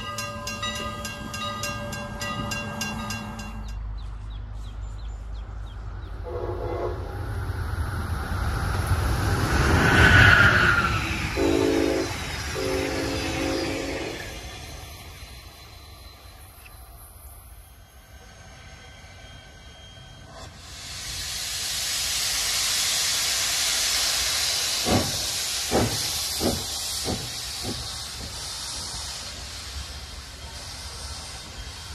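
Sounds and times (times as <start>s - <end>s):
train wheels rushing on rails: 0.0s - 31.9s
train horn: 6.2s - 7.2s, 11.4s - 14.4s
steam hissing: 8.4s - 31.9s.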